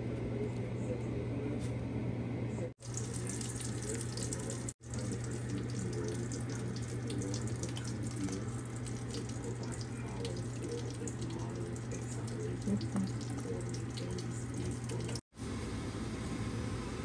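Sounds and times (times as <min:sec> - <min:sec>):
tap water running into sink: 0:02.8 - 0:15.2.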